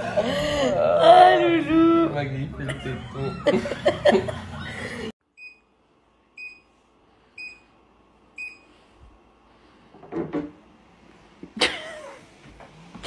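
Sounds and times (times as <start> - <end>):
people laughing: 2.4 - 5.1.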